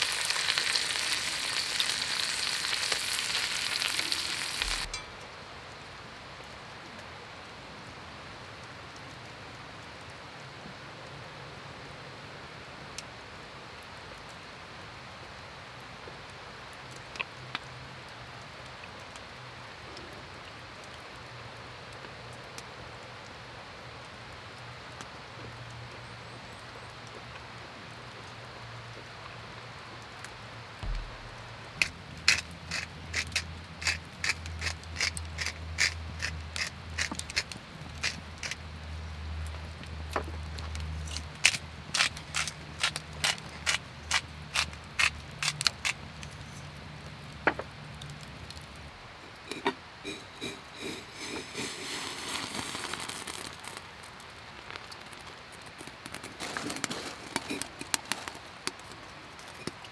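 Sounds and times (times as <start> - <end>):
pan frying sizzle: 0.0 - 5.2, 30.8 - 36.4, 42.8 - 58.9
forest ambience hiss: 0.0 - 39.8, 40.4 - 59.9
sharp clicks and knocks: 30.8 - 32.4.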